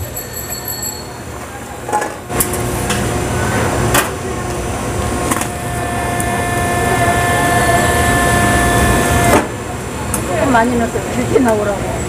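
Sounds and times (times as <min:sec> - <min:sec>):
noodle press humming and whining: 0:02.3 - 0:09.7.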